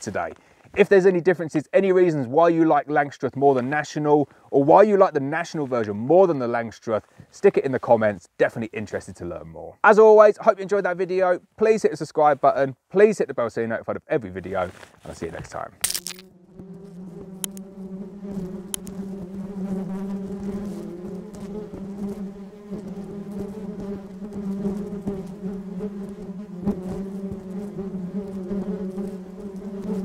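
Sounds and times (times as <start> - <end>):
bees buzzing: 15.9 - 30.0
faint clicks: 17.4 - 17.7, 18.7 - 19.0.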